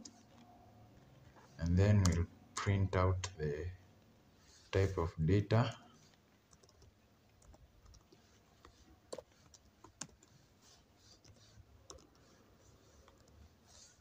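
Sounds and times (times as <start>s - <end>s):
faint keyboard typing: 0.0s - 2.3s, 5.6s - 14.0s.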